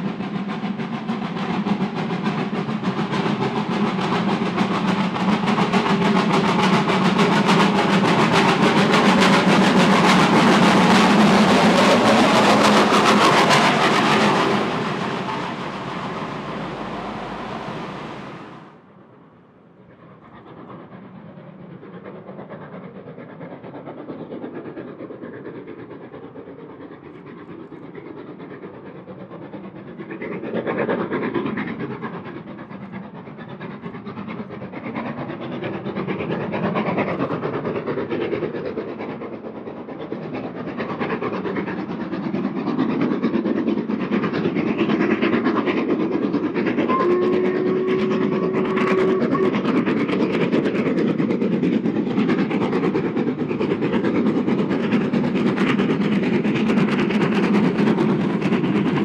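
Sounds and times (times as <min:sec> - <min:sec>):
steam train running on rails: 0:00.0 - 0:59.0
brief steady tone: 0:46.9 - 0:50.0.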